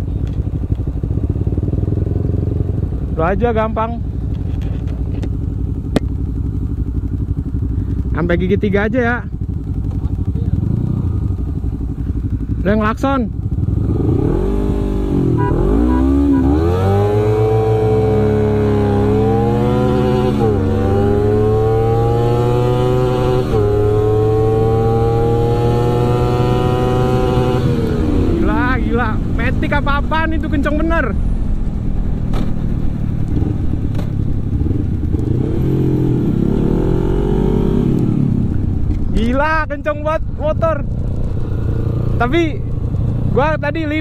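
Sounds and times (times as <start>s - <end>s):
motorcycle engine accelerating: 0.0s - 44.0s
rushing wind: 9.1s - 44.0s.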